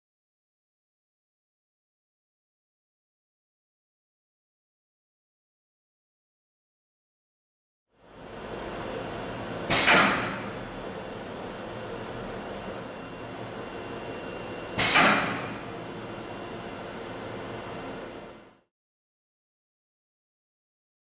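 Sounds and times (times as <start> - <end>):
machine mechanism running: 8.0 - 18.6
loud sudden mechanical bang: 9.7 - 10.6, 14.8 - 15.7.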